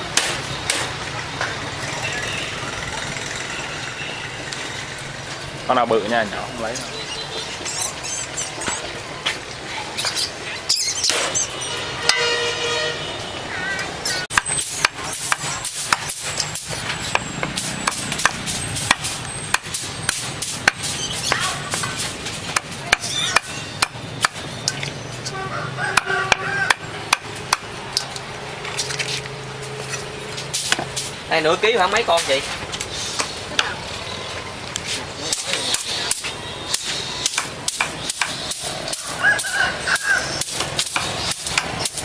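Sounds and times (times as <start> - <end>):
busy background noise: 0.0 - 42.0
voices talking: 0.6 - 12.3, 13.2 - 42.0
sharp irregular knocks: 40.4 - 42.0.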